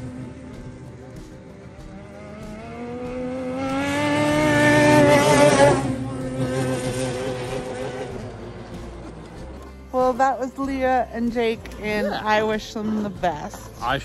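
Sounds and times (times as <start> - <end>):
snowmobile passing by: 0.0 - 1.2, 1.8 - 9.6.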